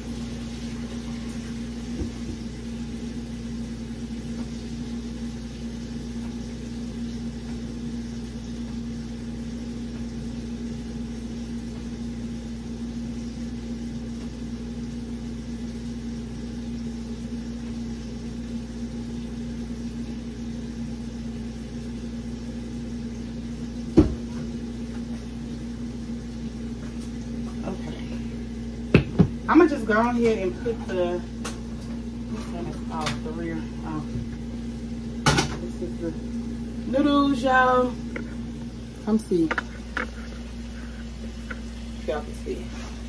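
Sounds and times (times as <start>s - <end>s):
appliance motor humming: 0.0s - 43.0s.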